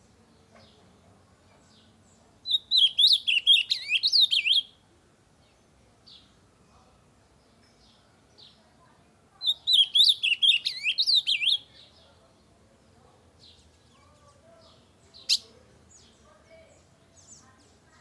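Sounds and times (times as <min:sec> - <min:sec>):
bird warbling song: 0:01.6 - 0:04.7, 0:09.4 - 0:12.0, 0:13.4 - 0:17.8
faint bird chips: 0:15.1 - 0:16.1.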